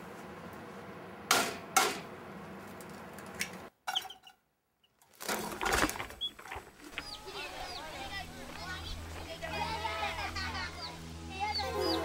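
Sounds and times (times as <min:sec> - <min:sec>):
sharp knocks of kitchen things: 0:01.3 - 0:02.1
steady hiss: 0:06.4 - 0:12.0.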